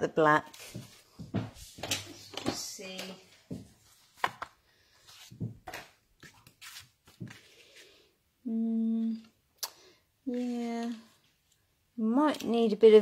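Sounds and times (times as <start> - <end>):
paper rustling and tapping on table: 0.7 - 4.6
woman humming hmm: 8.4 - 9.3.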